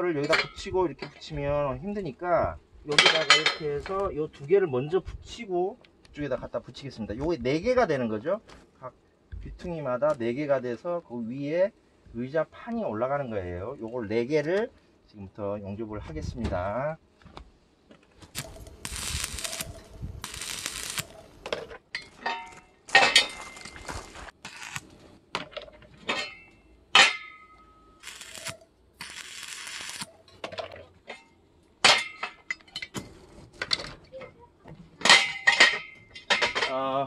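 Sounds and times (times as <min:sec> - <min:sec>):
stick welding crackling: 0:18.2 - 0:21.8, 0:22.5 - 0:25.2, 0:27.0 - 0:30.4.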